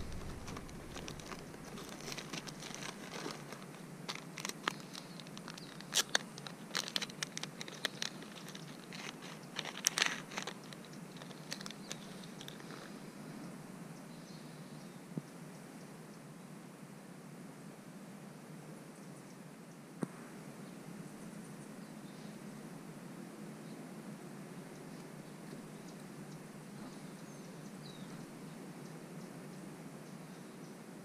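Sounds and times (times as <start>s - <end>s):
plastic packet crinkling: 0.0s - 12.9s.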